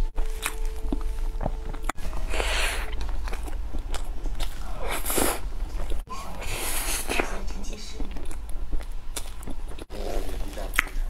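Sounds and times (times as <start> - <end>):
wet chewing: 0.0 - 11.0.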